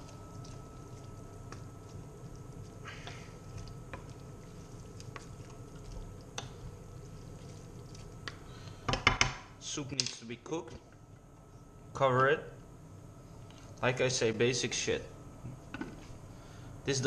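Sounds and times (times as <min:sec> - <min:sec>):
wet squishing of noodles: 0:00.0 - 0:08.8
low hum with high whine: 0:00.0 - 0:17.0.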